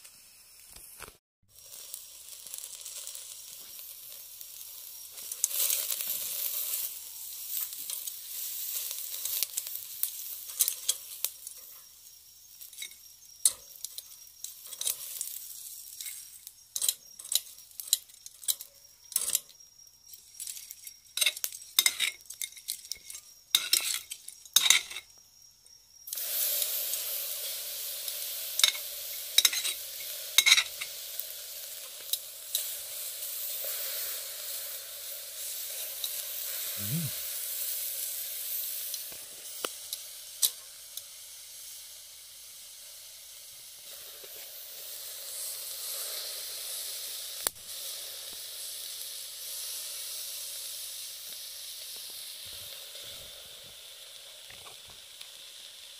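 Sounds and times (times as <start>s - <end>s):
meat sizzling on grill: 0.0s - 55.9s
metal tongs clicking on grill: 7.5s - 11.8s, 12.6s - 16.2s, 16.8s - 19.5s, 20.4s - 25.0s, 28.6s - 31.3s, 38.9s - 41.1s.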